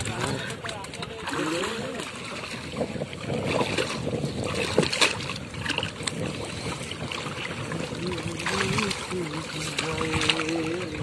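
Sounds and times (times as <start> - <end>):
water sloshing and splashing: 0.0 - 11.0.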